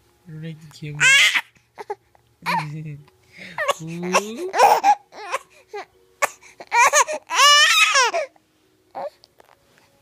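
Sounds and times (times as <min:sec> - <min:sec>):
baby squeak: 0:01.0 - 0:01.9, 0:03.6 - 0:05.4, 0:06.7 - 0:08.3
baby squealing: 0:01.0 - 0:02.7, 0:03.6 - 0:05.5, 0:06.6 - 0:08.3.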